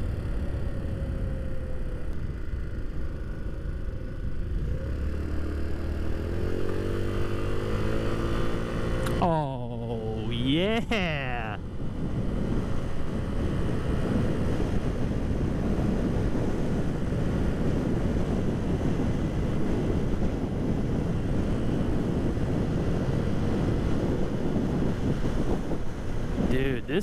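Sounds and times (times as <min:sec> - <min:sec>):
scooter engine cruising: 0:00.0 - 0:10.2
wind buffeting microphone: 0:11.6 - 0:26.6.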